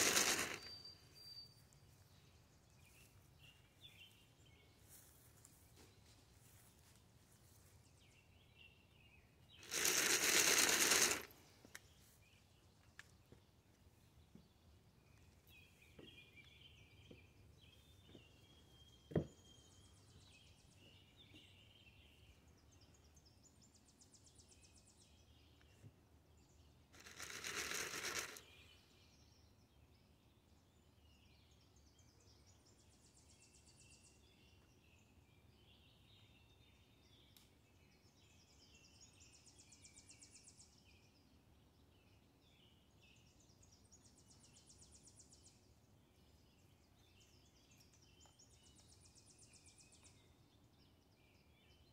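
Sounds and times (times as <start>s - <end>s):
corn kernels rattling in container: 0.0s - 0.8s, 9.6s - 11.3s, 27.0s - 28.6s
faint birdsong: 0.0s - 51.9s.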